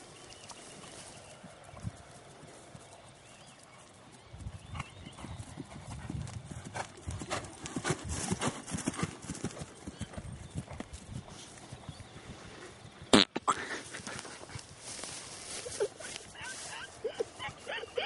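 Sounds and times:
horse hoofbeats on dirt: 0:00.6 - 0:13.1.

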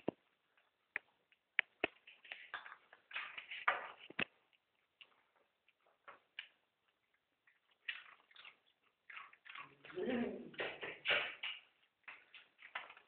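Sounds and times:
marmoset eating clicks and crunches: 0:05.0 - 0:09.9.

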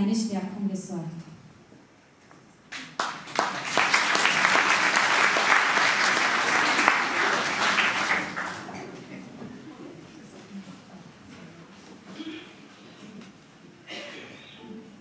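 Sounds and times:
audience applauding: 0:02.7 - 0:09.2.

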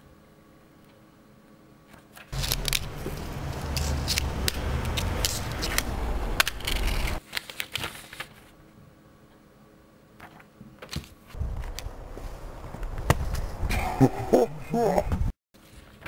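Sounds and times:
low rumble: 0:02.4 - 0:07.2.

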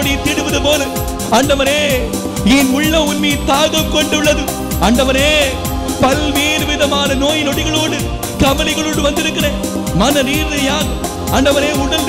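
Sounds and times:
live band with drum beat: 0:00.0 - 0:10.1
man singing into a microphone: 0:02.4 - 0:07.4.

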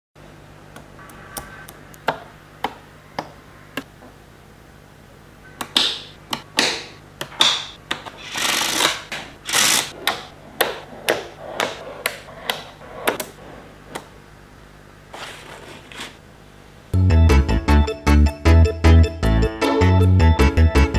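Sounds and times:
plastic sheet scraping: 0:15.1 - 0:16.2.

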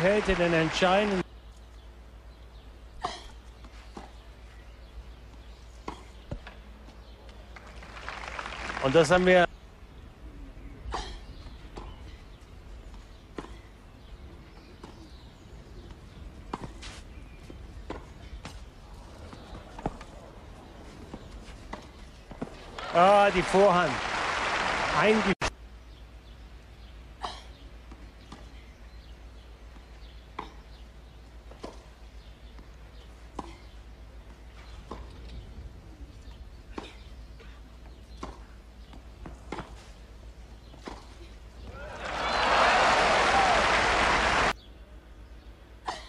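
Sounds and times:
tennis ball bouncing: 0:17.8 - 0:18.6, 0:29.8 - 0:35.3, 0:37.9 - 0:39.9, 0:40.6 - 0:41.7.

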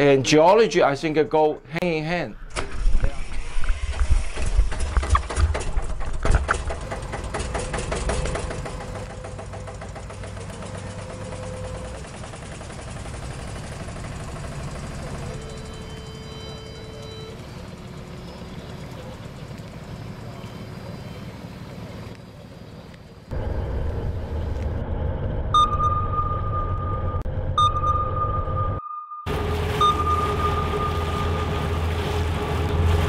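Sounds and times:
water splashing and churning: 0:02.8 - 0:23.3, 0:29.3 - 0:33.0
boat engine running: 0:03.4 - 0:26.3, 0:29.3 - 0:33.0.

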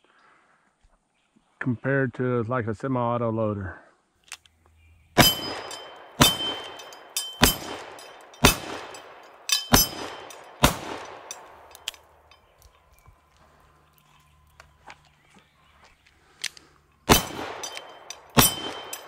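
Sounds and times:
revolver hammer cocking: 0:05.2 - 0:12.6, 0:16.4 - 0:19.0
steel target plates ringing: 0:05.2 - 0:12.6, 0:17.1 - 0:19.0.

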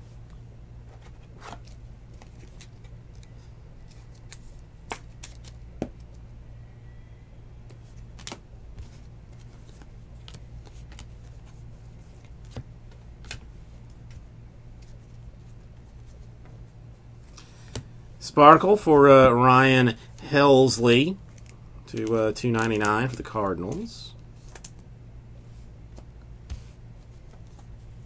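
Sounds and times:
steady low hum: 0:00.0 - 0:28.0
trading cards clicking and snapping: 0:01.4 - 0:06.2, 0:09.3 - 0:11.4.

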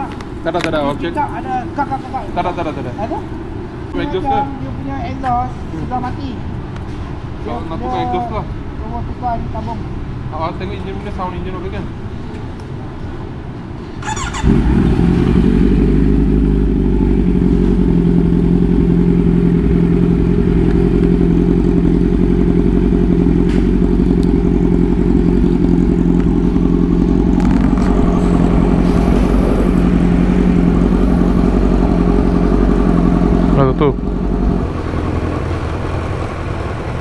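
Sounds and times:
motorcycle engine starting and idling: 0:14.0 - 0:37.0.

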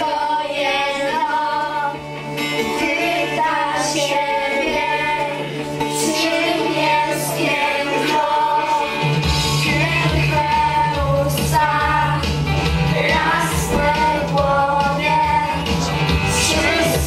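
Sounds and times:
girls singing together: 0:00.0 - 0:17.0.

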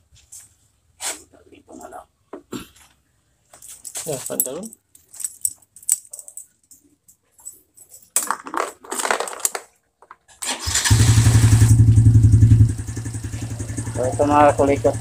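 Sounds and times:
handling clicks and rustles: 0:02.7 - 0:10.5
motorcycle engine starting and running: 0:10.4 - 0:15.0.

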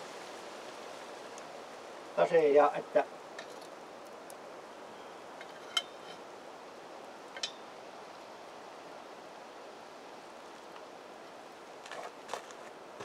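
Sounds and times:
faint background hiss: 0:00.0 - 0:13.0.

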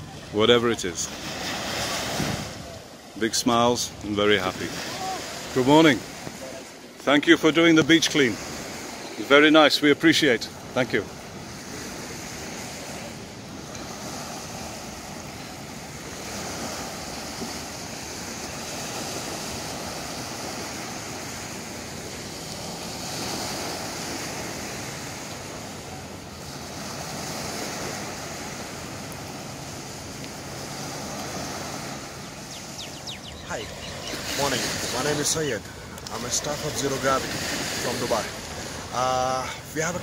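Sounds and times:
small waves washing onto beach: 0:00.0 - 0:40.0
wind on microphone: 0:01.2 - 0:02.9.

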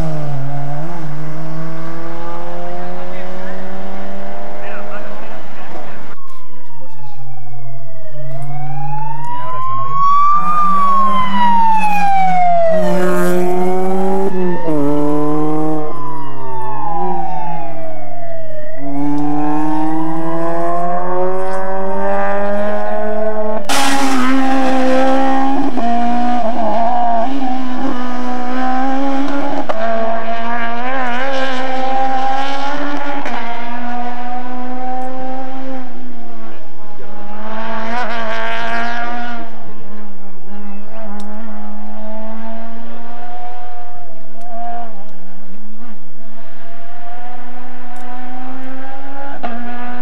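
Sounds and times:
rally car engine revving: 0:00.0 - 0:06.2, 0:09.2 - 0:17.8, 0:18.8 - 0:50.0
sudden loud burst: 0:23.7 - 0:25.5.

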